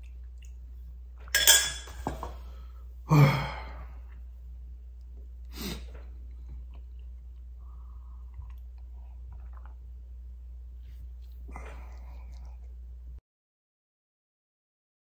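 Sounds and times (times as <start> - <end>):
man sighing ahh: 3.1 - 4.0
soft breath: 7.6 - 9.3.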